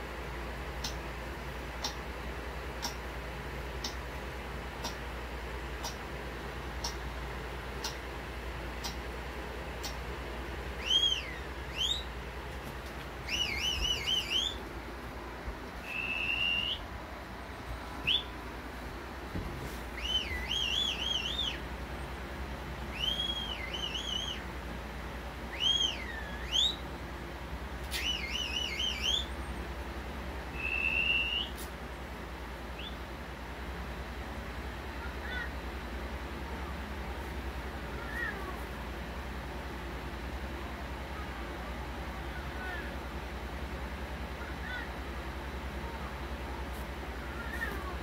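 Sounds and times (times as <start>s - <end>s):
whistle-like chirps through speaker: 10.8s - 12.1s, 13.3s - 14.6s, 15.8s - 16.8s, 22.9s - 24.4s, 25.6s - 26.8s, 27.9s - 29.3s, 30.6s - 31.6s.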